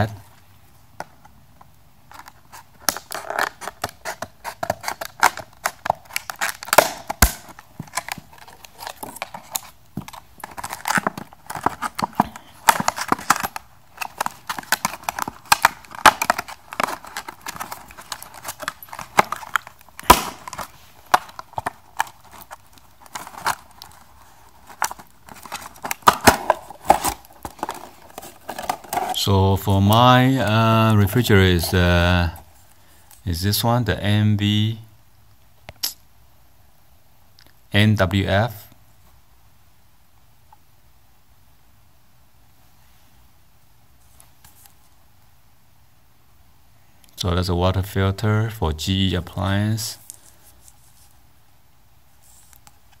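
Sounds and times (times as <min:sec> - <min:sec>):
plastic packaging crackling: 0:02.1 - 0:30.8
plastic snapping: 0:02.2 - 0:29.2
scissors cutting plastic packaging: 0:02.8 - 0:29.2.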